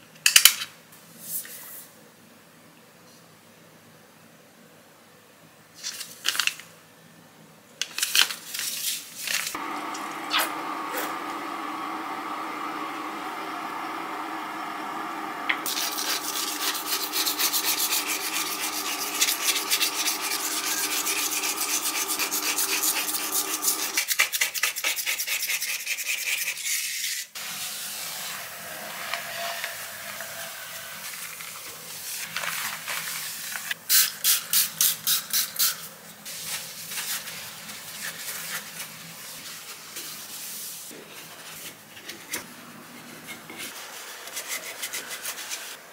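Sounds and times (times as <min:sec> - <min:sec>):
steady hum: 0:09.6 - 0:24.0
spray bottle pumps: 0:15.6 - 0:24.1
blade scraper on glass cooktop: 0:15.6 - 0:24.5.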